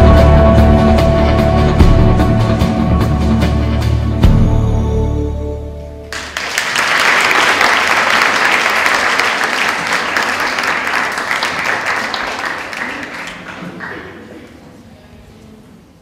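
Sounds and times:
audience applauding: 6.1 - 14.6.

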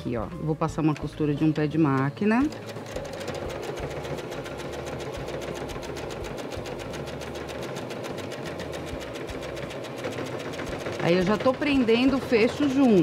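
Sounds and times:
sewing machine stitching: 1.7 - 13.0.

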